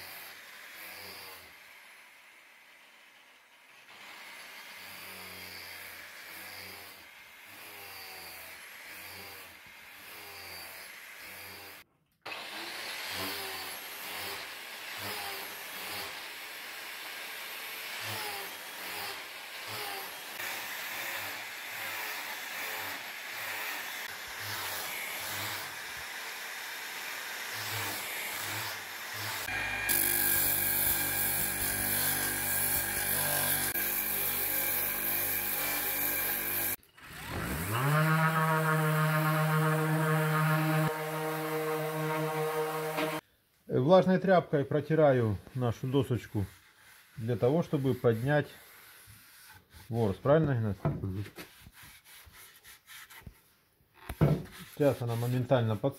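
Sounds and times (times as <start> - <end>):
angle grinder sanding wood: 3.9 - 43.2, 44.9 - 55.9
disc sander sanding wood: 17.8 - 36.8, 37.6 - 43.2, 45.8 - 53.3, 54.0 - 55.9.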